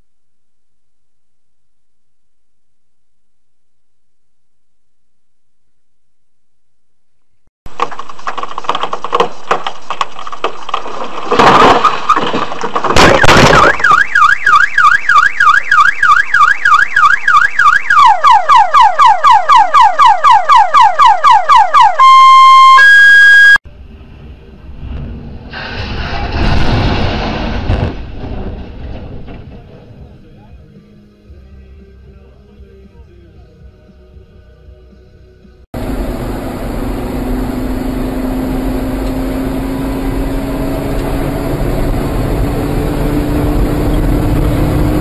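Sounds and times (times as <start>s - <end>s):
loud bangs: 11.3s - 14.2s, 24.8s - 30.2s
car alarm warbling tones: 13.1s - 23.6s.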